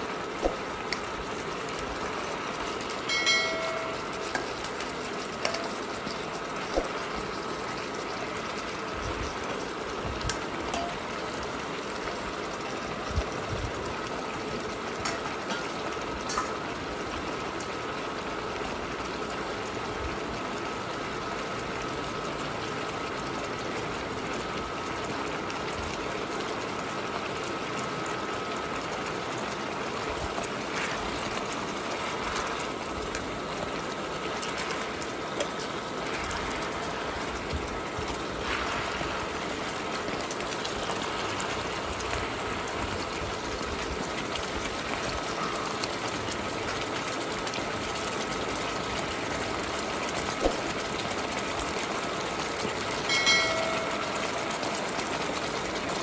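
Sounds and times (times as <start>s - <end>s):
thin steady whine: 0.0s - 8.6s
sauce simmering and bubbling: 0.0s - 56.0s.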